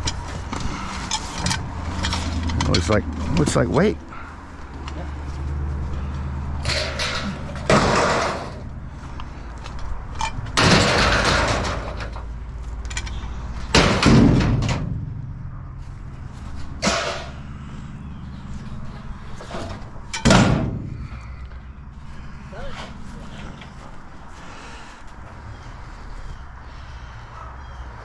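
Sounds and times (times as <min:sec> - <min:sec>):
steady low hum: 0:00.0 - 0:27.9
scrap metal crashing: 0:06.6 - 0:08.8, 0:10.6 - 0:12.3, 0:13.7 - 0:15.2, 0:16.7 - 0:17.5, 0:19.4 - 0:21.1.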